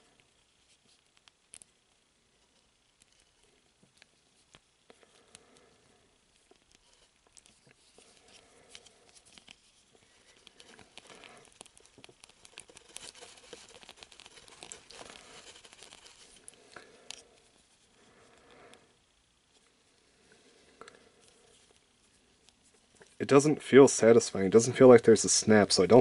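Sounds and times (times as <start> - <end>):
fingers scraping plastic: 6.7 - 16.5.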